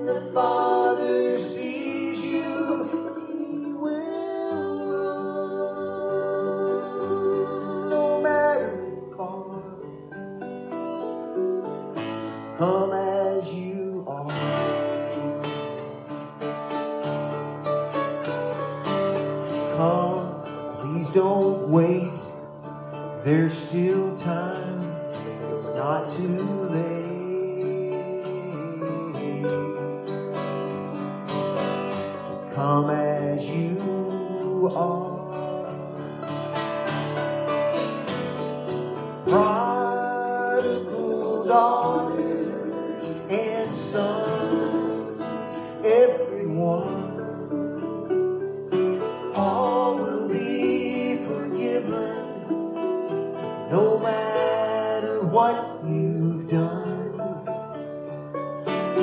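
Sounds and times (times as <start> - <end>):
woman singing: 0.0 - 9.0
acoustic guitar: 0.0 - 59.0
mandolin: 0.0 - 59.0.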